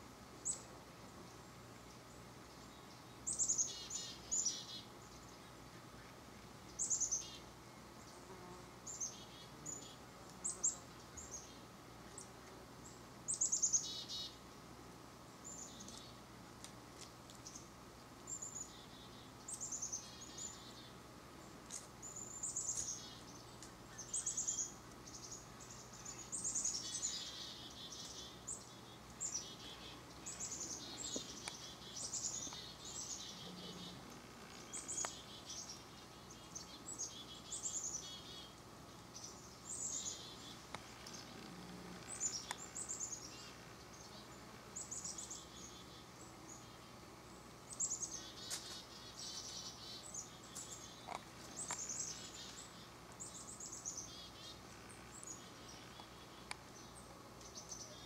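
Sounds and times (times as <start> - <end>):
nuthatches calling: 22.0 - 46.9.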